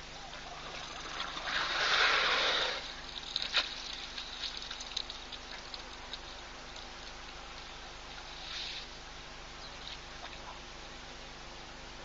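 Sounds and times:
elephant gushing water: 0.2 - 9.0
sharp ticks: 3.1 - 7.7.

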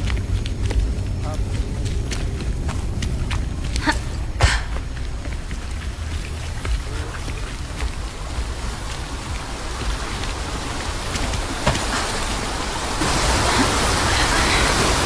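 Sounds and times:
low rumble: 0.0 - 11.5
rain-like hiss: 0.0 - 15.0.

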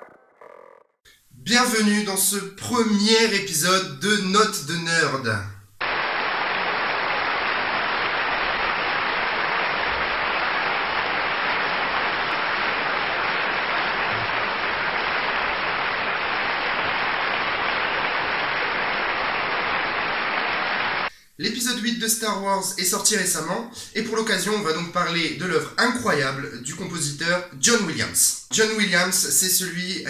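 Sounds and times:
large audience applauding: 5.8 - 21.1.

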